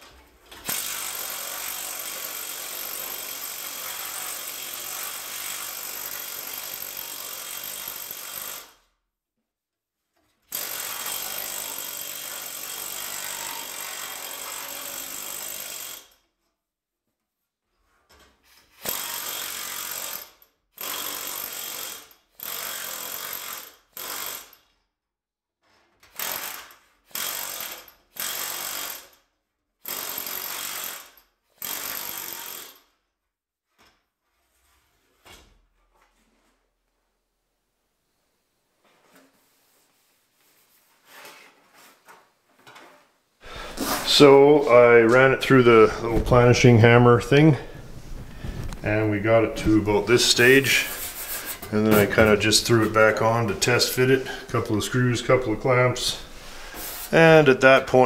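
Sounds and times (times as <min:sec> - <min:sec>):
air planishing hammer on sheet steel: 0:50.3 - 0:52.9.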